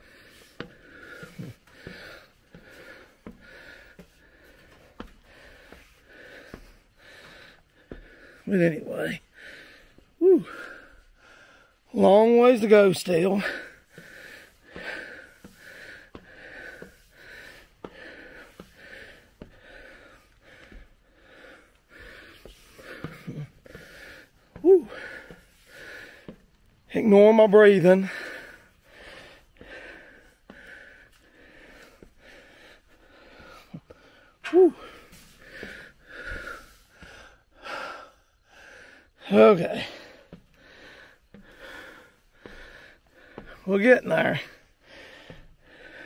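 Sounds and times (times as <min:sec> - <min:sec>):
man gasping: 0:00.0 - 0:08.5, 0:09.3 - 0:11.8, 0:13.3 - 0:26.5, 0:27.9 - 0:39.1
man breathing hard: 0:00.0 - 0:12.0, 0:13.2 - 0:26.9, 0:27.8 - 0:46.0
footsteps on stairs: 0:00.0 - 0:38.0, 0:38.8 - 0:46.0
man panting: 0:00.0 - 0:46.0.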